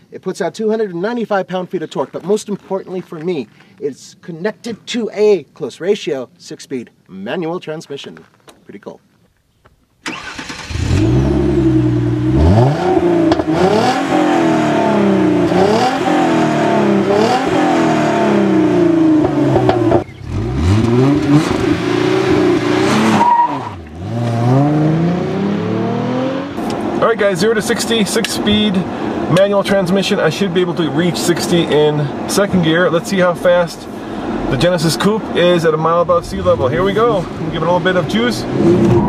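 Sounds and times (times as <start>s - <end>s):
car engine revving: 10.1s - 29.3s, 32.6s - 39.0s.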